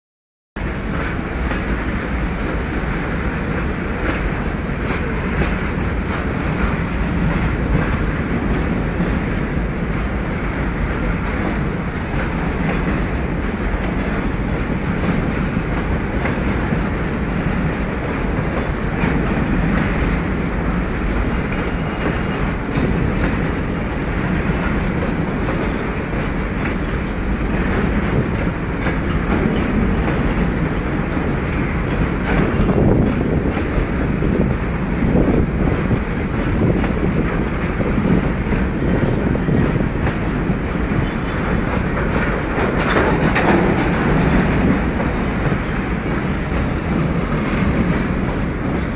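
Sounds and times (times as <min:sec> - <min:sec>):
clickety-clack over rail joints: 0:00.6 - 0:48.9
train wheels rumbling on rails: 0:00.6 - 0:48.9.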